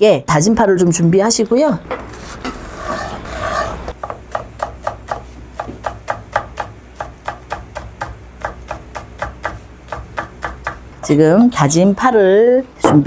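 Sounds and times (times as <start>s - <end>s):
knife chopping on wooden board: 1.9s - 10.8s.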